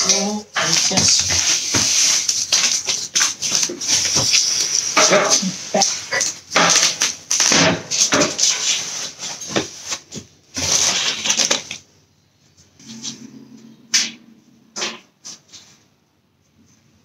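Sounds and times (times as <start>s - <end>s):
plastic sheet rustling: 0.0s - 11.9s.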